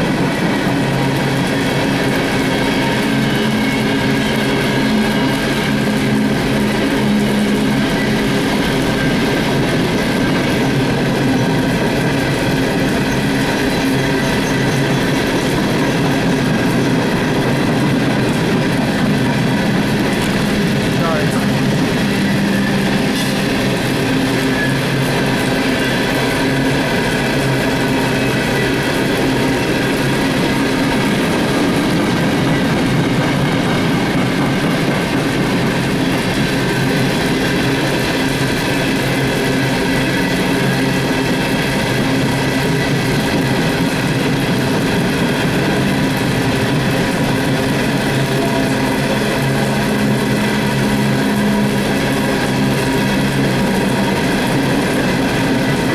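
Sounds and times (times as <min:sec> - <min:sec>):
train wheels rumbling on rails: 0:00.0 - 0:55.9.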